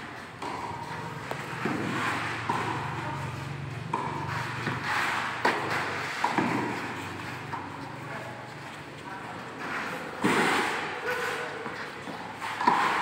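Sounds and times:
tennis ball strikes and bounces: 0:00.2 - 0:08.8, 0:11.6 - 0:13.0.

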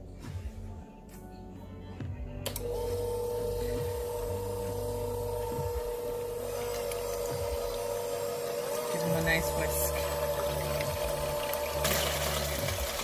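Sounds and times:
electric hand mixer whisking: 0:02.6 - 0:13.0.

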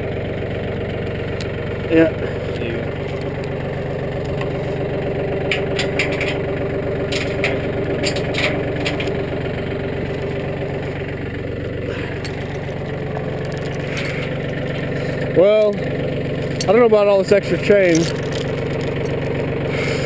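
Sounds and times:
tractor engine idling: 0:00.0 - 0:20.0
metal chain clinking: 0:17.6 - 0:19.3.

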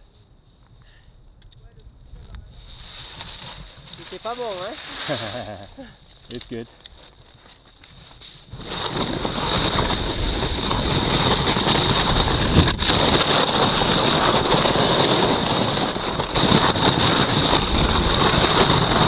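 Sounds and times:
board scraping over hard snow: 0:02.6 - 0:05.7, 0:08.3 - 0:19.0
wind buffeting microphone: 0:08.5 - 0:19.0.

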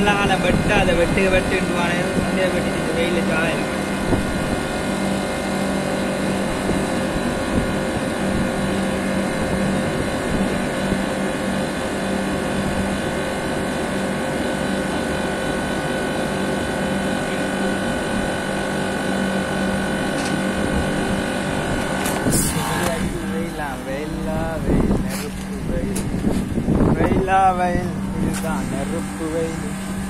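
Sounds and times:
condenser units humming: 0:00.0 - 0:30.0
steady whining tones: 0:00.0 - 0:30.0.

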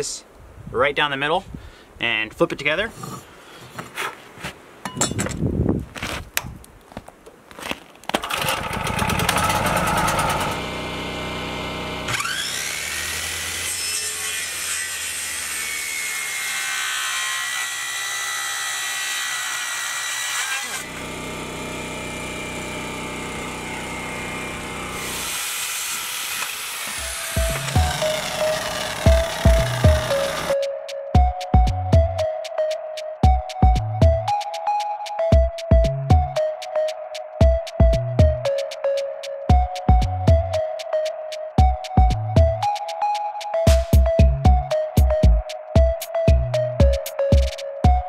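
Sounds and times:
circular saw cutting wood: 0:08.3 - 0:30.6.

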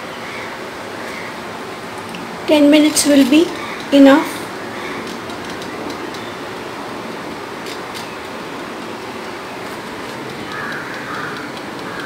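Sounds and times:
steady background hiss: 0:00.0 - 0:12.0
timer dial clicks: 0:10.0 - 0:12.0.

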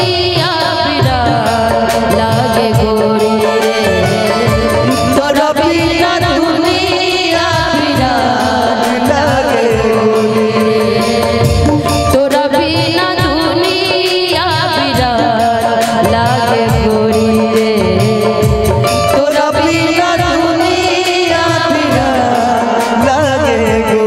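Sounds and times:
amplified instrumental accompaniment: 0:00.0 - 0:24.0
steady drum rhythm: 0:00.0 - 0:24.0
woman singing: 0:00.0 - 0:24.0
man singing: 0:01.9 - 0:12.3, 0:15.8 - 0:24.0.

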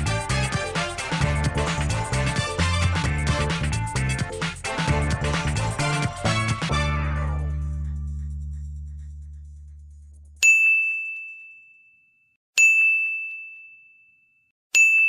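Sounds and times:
background music: 0:00.0 - 0:10.4
bright bell-like dings: 0:10.4 - 0:15.0.

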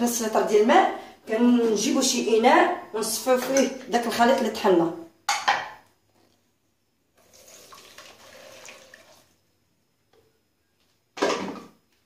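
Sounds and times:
juice pouring into strainer: 0:07.2 - 0:09.4.

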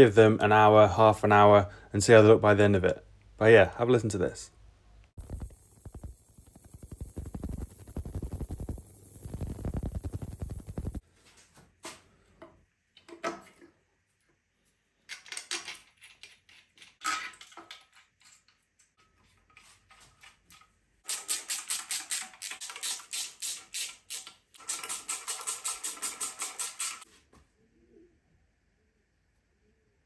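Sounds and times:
hand ratchet clicking rapidly: 0:21.1 - 0:27.0.

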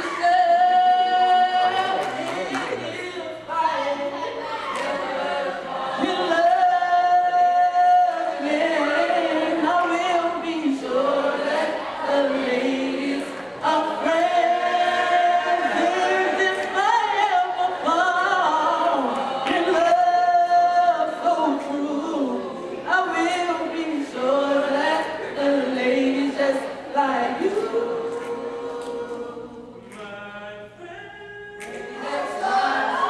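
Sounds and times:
boys singing a cappella: 0:00.0 - 0:33.0.

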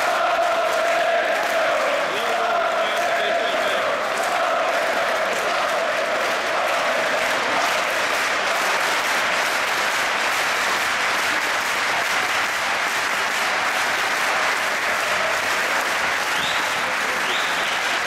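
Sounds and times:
crowd applauding: 0:00.0 - 0:18.0.

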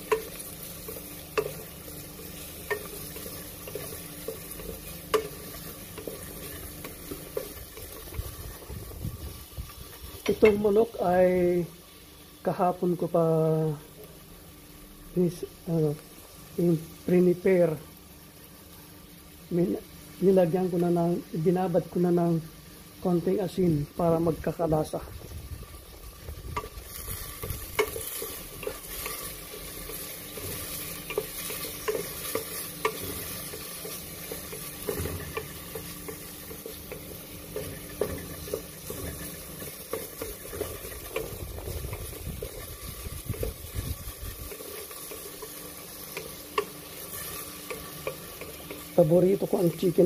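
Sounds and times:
garlic and onion sizzling in oil: 0:00.0 - 0:50.0
utensil knocking and scraping pan: 0:27.4 - 0:42.7.

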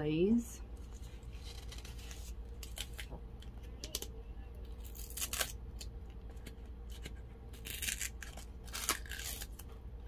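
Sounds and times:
paper seal tearing: 0:04.9 - 0:05.6, 0:07.6 - 0:09.6.

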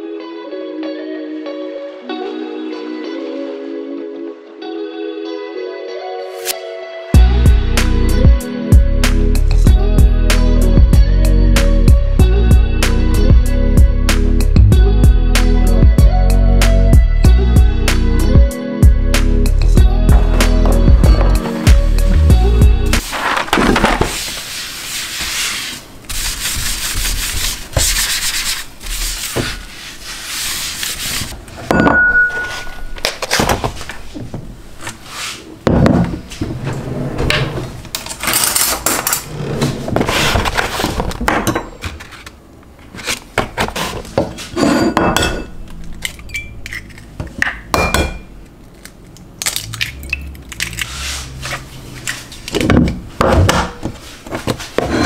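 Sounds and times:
scraping against wood: 0:52.7 - 0:55.0.

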